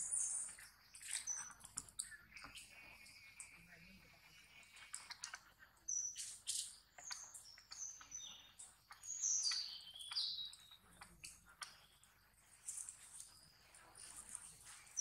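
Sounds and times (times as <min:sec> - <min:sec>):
birds chirping: 0:05.9 - 0:15.0.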